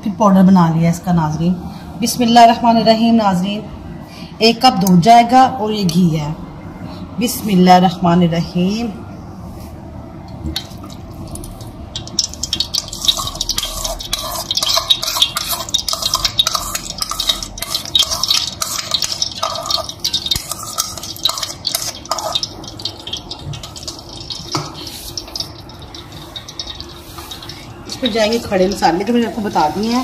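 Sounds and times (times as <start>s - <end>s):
liquid poured into a pot: 10.6s - 27.9s
metal spoon stirring in a pot: 10.6s - 30.0s.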